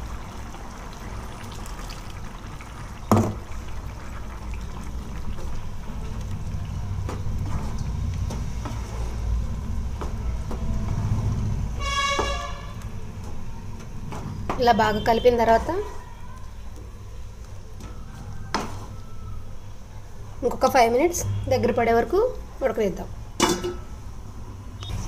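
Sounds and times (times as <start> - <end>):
horn-like toot: 11.8 - 12.8.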